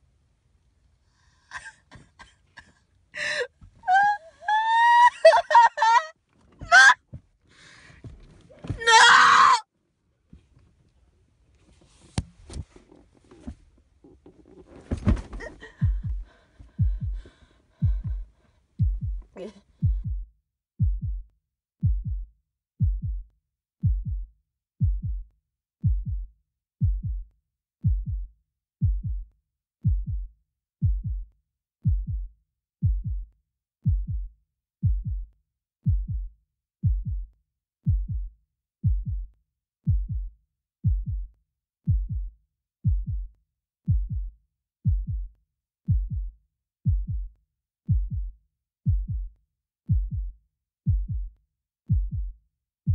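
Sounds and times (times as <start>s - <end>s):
rough handling noise: 11.5s - 15.7s
heartbeat thuds: 13.4s - 43.3s, 43.9s - 52.9s.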